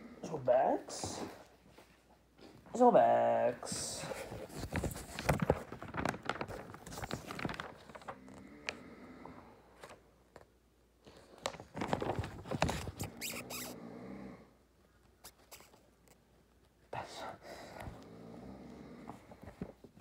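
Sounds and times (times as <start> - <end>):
rustling handling noise: 3.7 - 8.2, 11.1 - 13.8.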